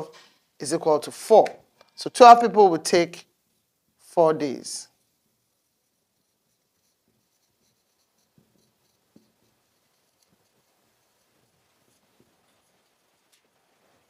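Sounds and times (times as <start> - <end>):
pen scratching while writing: 5.7 - 12.8.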